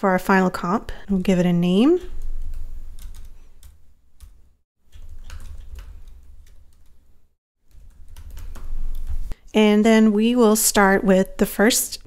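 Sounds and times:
keyboard keys typing: 2.1 - 7.0, 7.7 - 9.3.

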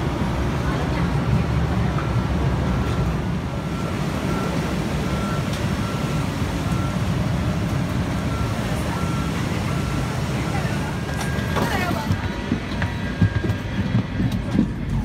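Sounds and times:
low rumble of machinery: 0.0 - 15.0
high warning beep: 2.8 - 7.4, 8.2 - 12.4.

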